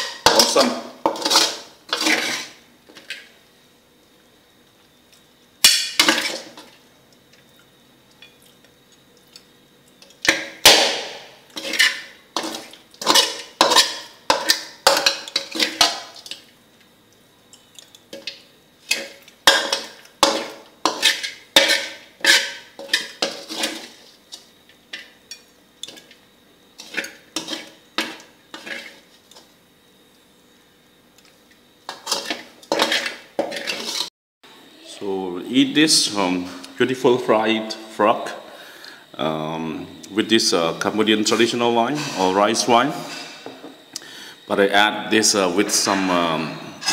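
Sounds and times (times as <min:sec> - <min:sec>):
spatula scraping a metal pan: 0:00.0 - 0:02.6, 0:11.5 - 0:16.4, 0:18.8 - 0:24.4, 0:26.8 - 0:29.1, 0:31.9 - 0:34.1, 0:42.0 - 0:43.5.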